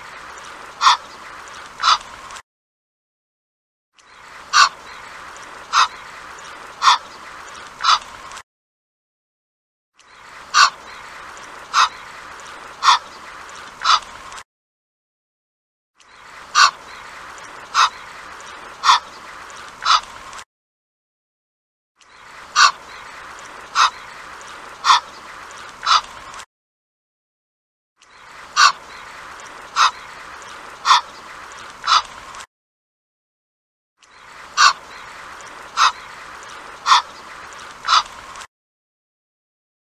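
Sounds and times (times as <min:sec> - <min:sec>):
goose calling: 0:00.8 - 0:01.1, 0:01.8 - 0:02.1, 0:04.5 - 0:04.9, 0:05.7 - 0:06.0, 0:06.8 - 0:07.1, 0:07.8 - 0:08.1, 0:10.5 - 0:11.0, 0:11.7 - 0:12.1, 0:12.8 - 0:13.2, 0:16.5 - 0:16.8, 0:17.6 - 0:18.1, 0:18.7 - 0:19.2, 0:22.6 - 0:22.8, 0:23.7 - 0:24.2, 0:24.8 - 0:25.2, 0:25.8 - 0:26.1, 0:28.6 - 0:31.2, 0:31.8 - 0:32.1, 0:34.6 - 0:35.1, 0:35.7 - 0:36.2, 0:36.8 - 0:37.2, 0:37.8 - 0:38.1.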